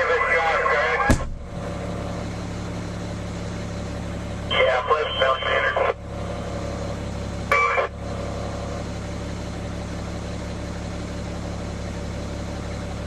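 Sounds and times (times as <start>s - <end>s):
fire engine idling: 0.0s - 13.0s
two-way radio burst: 4.5s - 6.0s.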